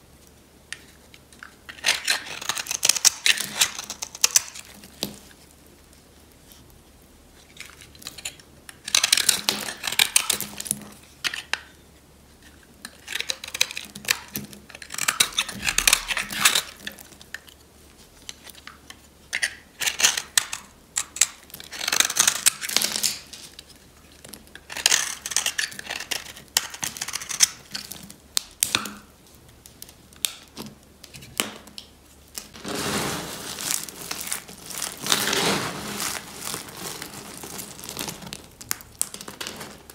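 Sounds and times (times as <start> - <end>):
knife scraping soap: 0.8 - 4.8, 12.5 - 17.5, 19.4 - 22.8, 24.5 - 28.0
hands crinkling soap shavings: 0.8 - 11.6, 12.5 - 39.9.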